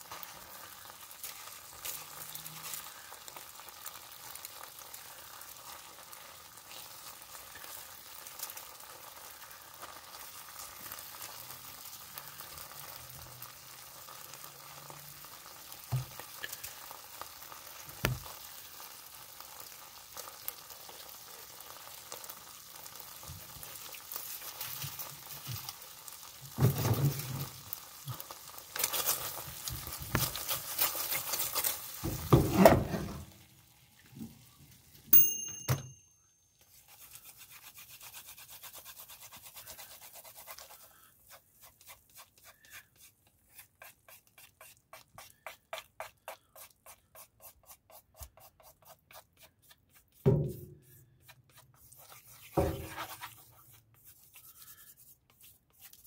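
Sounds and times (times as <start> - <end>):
food sizzling in a pan: 0.0 - 35.4, 52.0 - 53.6.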